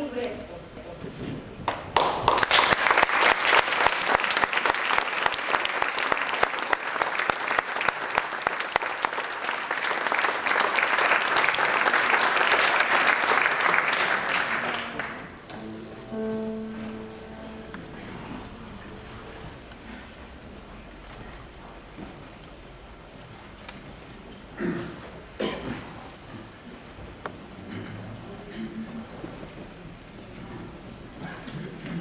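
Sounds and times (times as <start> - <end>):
audience applauding: 1.6 - 15.8
soft held pitched notes: 15.5 - 21.8.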